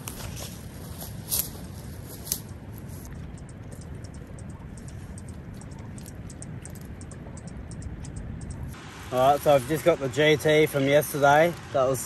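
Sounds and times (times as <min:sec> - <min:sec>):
low wind rumble: 0:00.0 - 0:12.0
insects ticking: 0:02.2 - 0:09.2.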